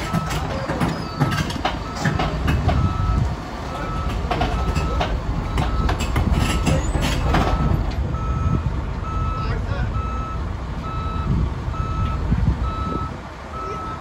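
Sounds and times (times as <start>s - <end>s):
steel tracks clanking on steel plates: 0.0s - 8.1s
drilling rig engine running: 0.0s - 14.0s
travel alarm beeping: 0.0s - 14.0s.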